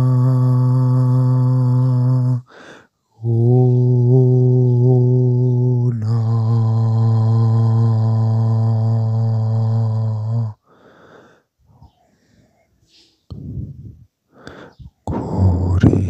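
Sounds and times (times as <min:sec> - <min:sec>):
man chanting low note: 0:00.0 - 0:02.4, 0:03.2 - 0:10.6, 0:15.1 - 0:16.0
person breathing: 0:02.4 - 0:03.3, 0:10.5 - 0:15.5.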